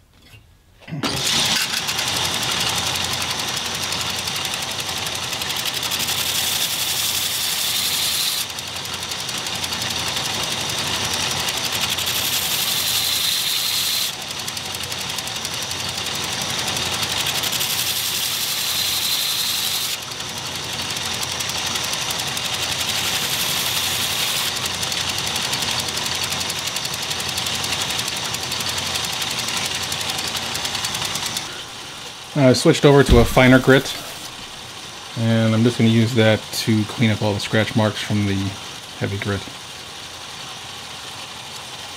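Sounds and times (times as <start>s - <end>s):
belt grinder running: 1.0s - 36.4s
hissing grinding of steel: 32.9s - 34.6s.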